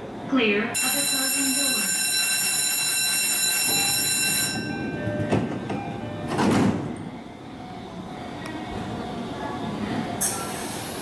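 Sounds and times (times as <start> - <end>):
sliding train doors closing: 3.3 - 11.0.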